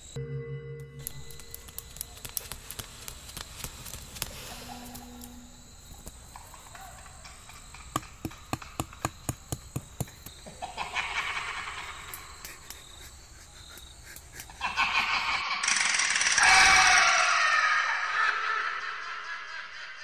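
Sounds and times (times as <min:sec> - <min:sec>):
crickets chirring: 0:00.0 - 0:00.2, 0:00.9 - 0:19.9
sharp clicks: 0:01.0 - 0:05.3.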